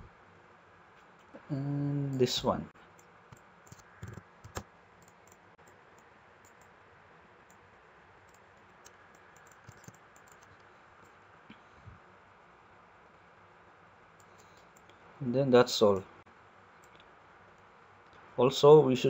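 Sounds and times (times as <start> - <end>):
computer mouse clicks: 2.9 - 6.7, 8.3 - 11.2.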